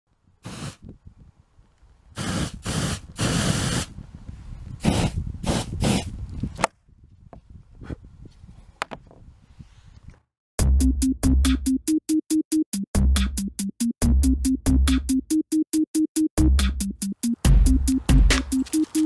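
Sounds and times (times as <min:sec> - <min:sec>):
hairspray can hissing bursts: 0:00.4 - 0:00.8, 0:02.2 - 0:03.9, 0:04.8 - 0:06.1.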